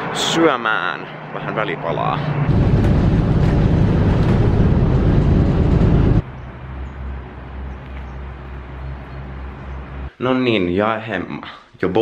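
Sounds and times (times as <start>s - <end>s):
bus engine and road noise: 0.0s - 10.1s
low hum: 2.5s - 10.1s.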